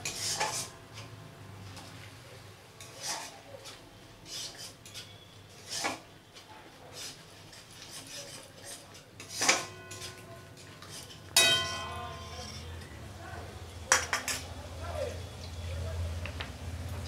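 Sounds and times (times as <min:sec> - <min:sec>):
metal spoon scraping a metal pan: 0:00.0 - 0:01.1, 0:02.8 - 0:06.1, 0:06.9 - 0:12.9.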